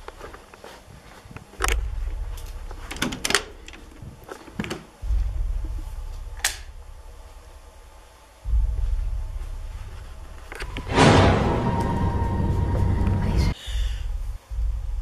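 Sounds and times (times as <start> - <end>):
deep bass booms: 5.0 - 15.0.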